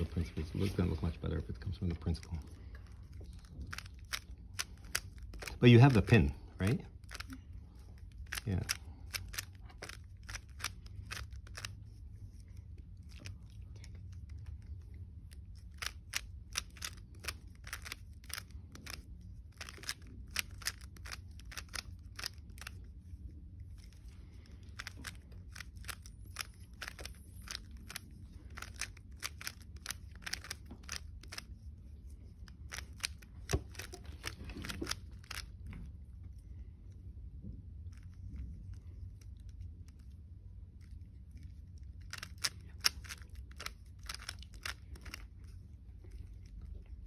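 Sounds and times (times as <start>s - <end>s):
steady low hum: 0.0s - 47.0s
puzzle cube plastic clicks: 3.0s - 6.3s, 7.0s - 12.0s, 14.2s - 22.8s, 23.8s - 31.6s, 32.5s - 35.6s, 41.8s - 45.3s.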